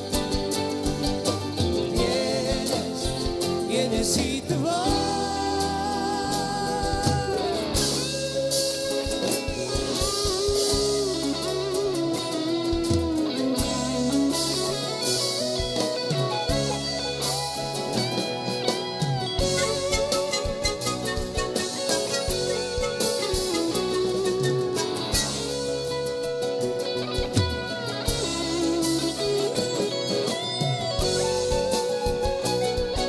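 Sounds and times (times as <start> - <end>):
drum kit: 0.0 - 33.0
guitar: 0.0 - 33.0
person singing: 1.5 - 12.0.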